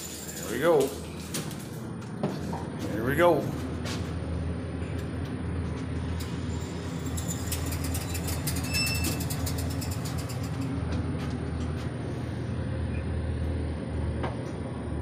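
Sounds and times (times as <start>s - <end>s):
elevator machinery hum: 0.0s - 15.0s
elevator doors sliding shut: 3.6s - 13.2s
clicks and rattles: 7.0s - 11.8s.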